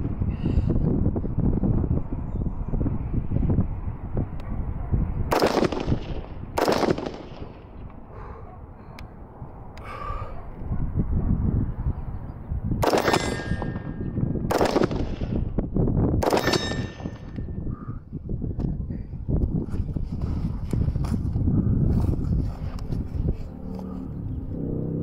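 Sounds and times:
wind rumble on microphone: 0.0s - 25.0s
rifle shots: 5.3s - 7.6s, 12.8s - 15.5s, 16.2s - 17.3s
steel plate ringing: 16.4s - 17.2s.

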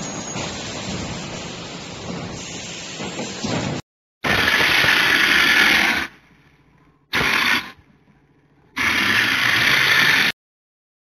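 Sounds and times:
mortar spray gun hissing: 0.5s - 3.6s, 4.3s - 6.2s, 7.1s - 7.8s, 8.8s - 10.3s.

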